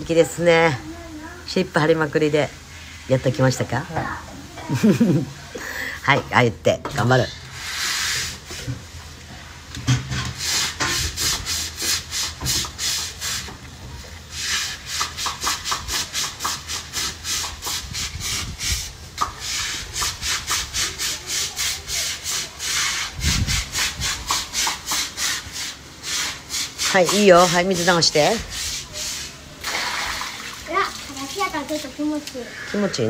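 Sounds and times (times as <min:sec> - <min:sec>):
brush scrubbing wet concrete: 0:07.0 - 0:33.0.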